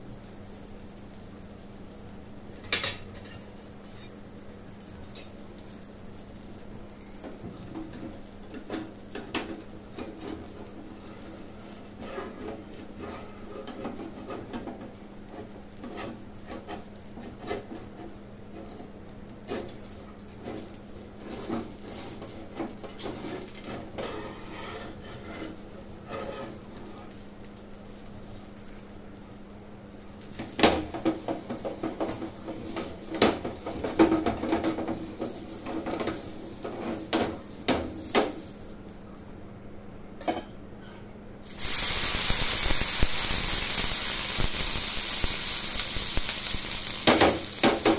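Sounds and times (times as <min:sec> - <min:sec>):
metal spatula scraping a griddle: 0:02.8 - 0:04.2, 0:08.6 - 0:27.3, 0:30.9 - 0:38.5.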